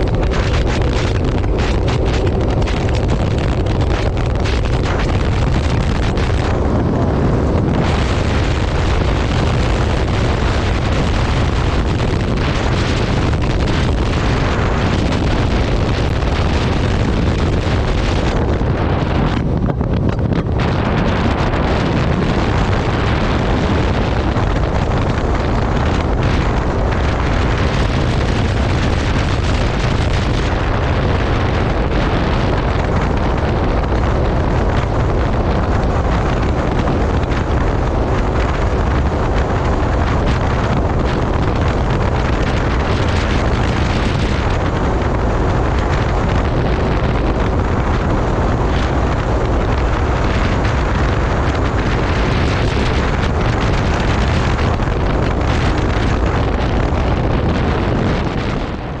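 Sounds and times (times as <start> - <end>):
rushing water: 0.0 - 59.0
watercraft engine running: 0.0 - 59.0
wind buffeting microphone: 0.0 - 59.0.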